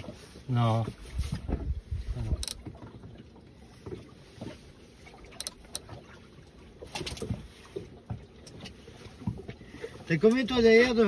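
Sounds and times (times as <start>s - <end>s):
water lapping against hull: 0.0s - 11.0s
sharp clicks and knocks: 2.3s - 2.7s, 5.4s - 5.9s.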